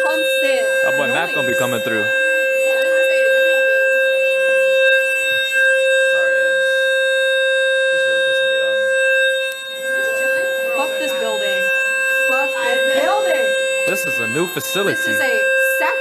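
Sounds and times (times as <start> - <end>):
fire alarm tone: 0.0 - 16.0
faint voices: 12.3 - 16.0.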